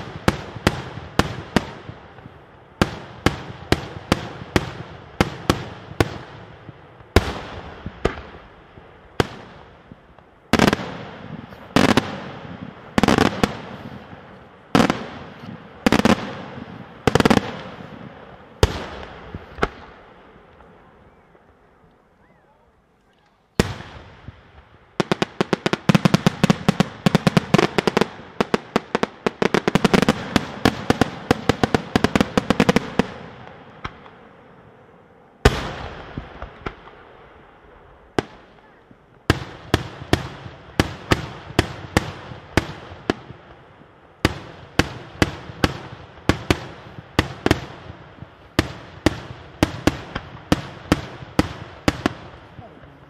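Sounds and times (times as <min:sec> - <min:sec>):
fireworks bursting in bangs: 0:00.0 - 0:21.4, 0:23.6 - 0:34.2, 0:35.4 - 0:53.0.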